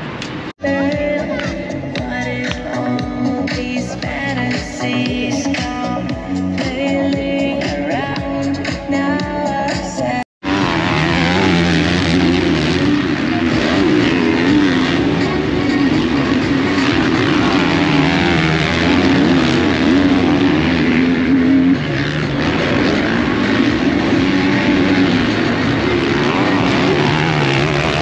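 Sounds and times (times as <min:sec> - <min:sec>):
motocross bike engines revving: 0:10.1 - 0:28.0.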